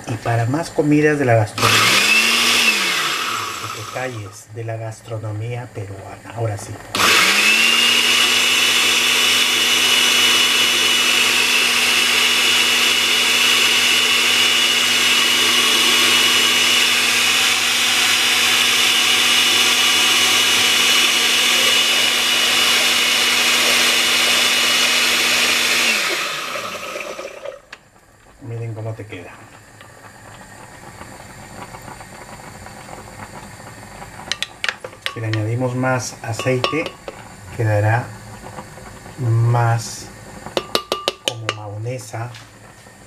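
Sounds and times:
blender motor humming: 1.6s - 4.4s, 6.8s - 28.0s.

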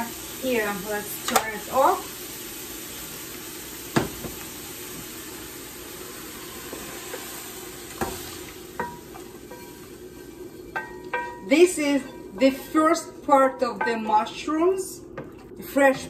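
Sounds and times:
mushrooms sizzling in a frying pan: 0.0s - 15.0s
sharp knocks on pan: 3.9s - 4.4s.

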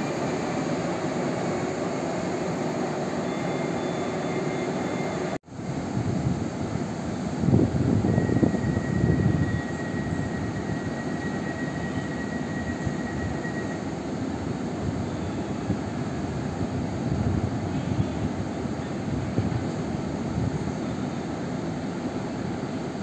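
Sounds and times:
thin high whine: 0.0s - 5.4s, 7.9s - 14.2s
electric train humming: 0.0s - 23.0s.

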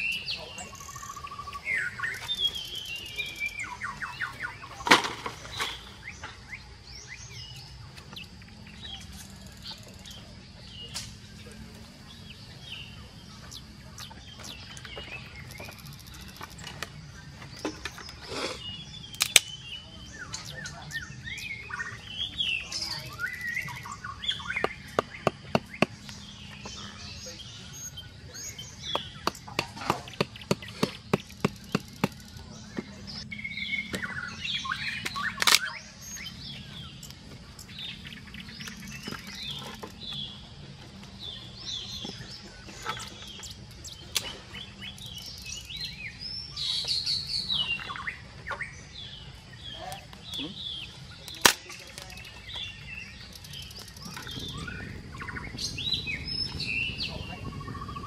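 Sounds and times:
birds chirping: 0.0s - 58.0s
dry sticks snapping: 10.9s - 11.2s, 19.1s - 19.6s, 35.0s - 35.8s, 51.2s - 52.4s.

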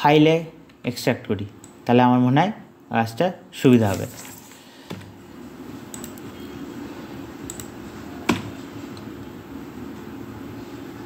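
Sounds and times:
computer mouse clicks: 5.9s - 6.3s, 7.4s - 9.1s.

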